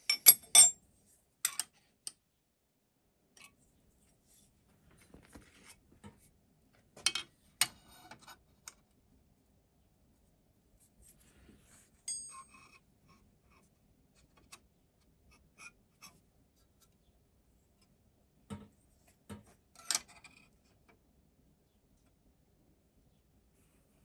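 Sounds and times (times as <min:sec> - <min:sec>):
sharp metallic clink: 0:12.1 - 0:12.6.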